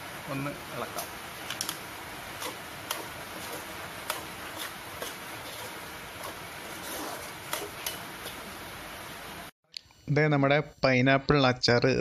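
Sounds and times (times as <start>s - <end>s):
steady hiss: 0.0s - 11.5s
spoon scraping a metal pot: 2.4s - 8.4s.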